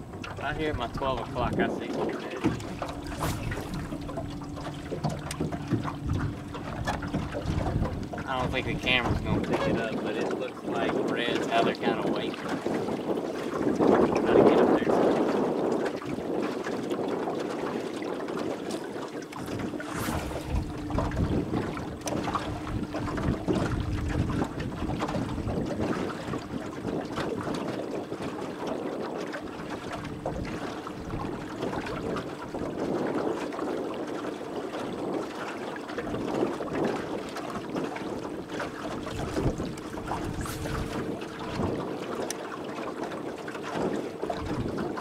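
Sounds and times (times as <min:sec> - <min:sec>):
steady low hum: 0:00.0 - 0:10.2, 0:19.2 - 0:26.6, 0:38.7 - 0:42.4
water noise from boat: 0:00.0 - 0:45.0
wind buffeting microphone: 0:00.0 - 0:45.0.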